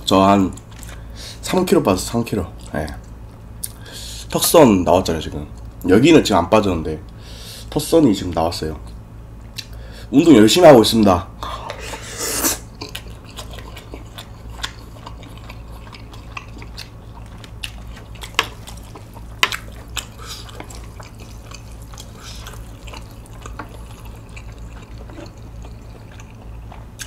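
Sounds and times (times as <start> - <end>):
low steady hum: 0.0 - 27.0
wet sticky noodles being mixed: 12.6 - 27.0.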